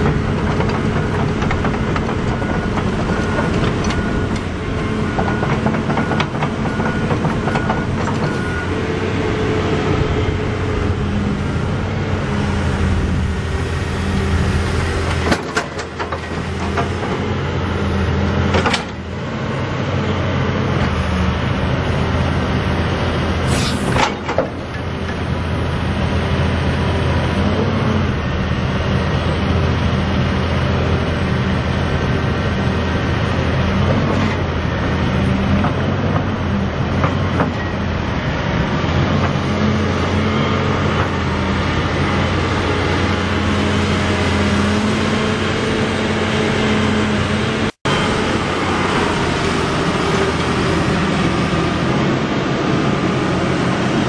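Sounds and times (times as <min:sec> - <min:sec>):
diesel engine running: 0:00.0 - 0:54.0
short high hiss: 0:23.5 - 0:24.0.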